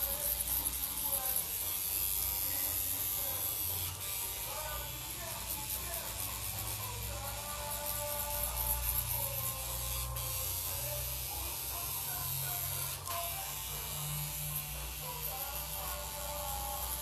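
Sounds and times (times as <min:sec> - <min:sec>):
tattoo machine buzzing: 0:00.0 - 0:17.0.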